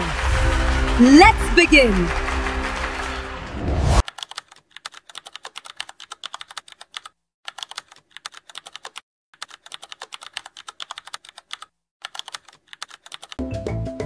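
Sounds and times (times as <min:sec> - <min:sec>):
rapid keyboard typing: 0:04.0 - 0:13.4.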